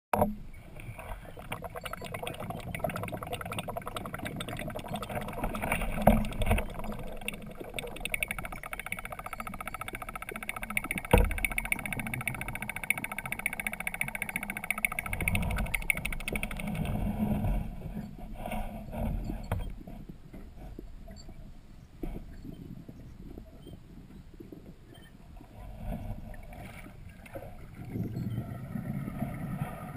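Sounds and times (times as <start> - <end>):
muffled underwater water noise: 0.2 - 29.9
sharp knocks: 10.0 - 12.4.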